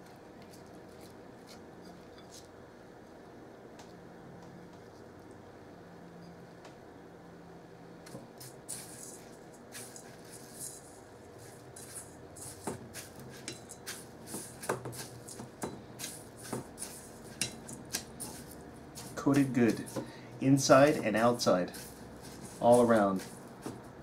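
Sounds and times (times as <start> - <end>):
crumbs rustling: 8.4 - 24.0
chopsticks tapping a metal bowl: 11.8 - 20.2.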